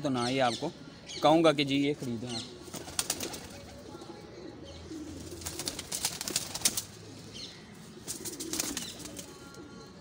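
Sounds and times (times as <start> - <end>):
pigeons cooing: 2.2 - 10.0
wing flaps: 5.3 - 7.0.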